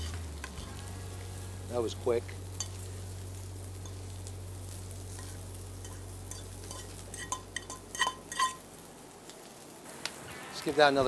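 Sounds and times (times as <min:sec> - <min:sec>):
low steady hum: 0:00.0 - 0:09.2
fork scraping a frying pan: 0:05.1 - 0:08.6.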